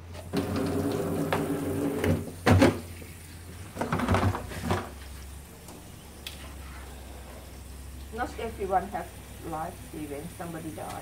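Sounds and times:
steady hum: 0:00.0 - 0:11.0
tap water running into basin: 0:00.0 - 0:11.0
plastic bowls and strainer clattering: 0:03.7 - 0:05.0.

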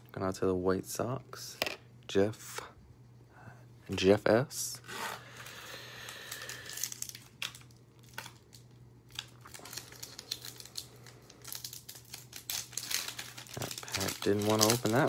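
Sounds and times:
foil wrapper crinkling and tearing: 0:05.3 - 0:15.0.

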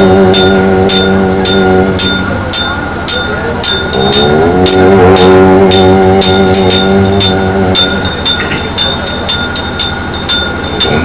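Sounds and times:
person singing long note: 0:00.0 - 0:02.7, 0:03.4 - 0:08.5, 0:10.8 - 0:11.0
ringing metallic strikes: 0:00.0 - 0:11.0
thin steady high tone: 0:00.0 - 0:11.0.

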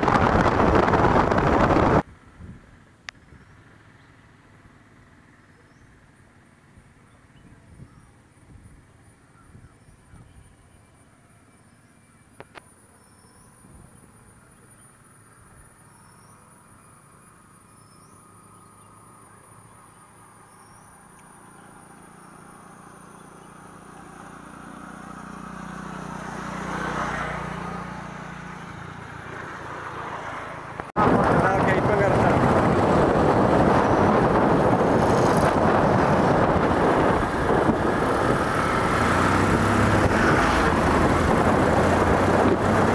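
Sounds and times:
faint chirps: 0:07.0 - 0:24.0
vehicle passing: 0:17.4 - 0:42.9.

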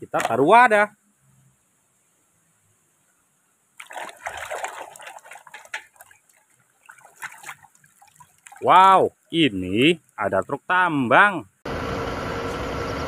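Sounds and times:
muddy water splashing in basin: 0:00.0 - 0:00.5, 0:03.8 - 0:10.5.

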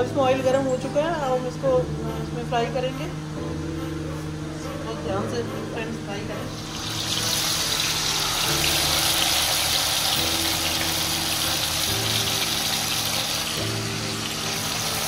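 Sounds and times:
background music with held chords: 0:00.0 - 0:15.0
chicken sizzling in hot oil: 0:06.4 - 0:15.0.

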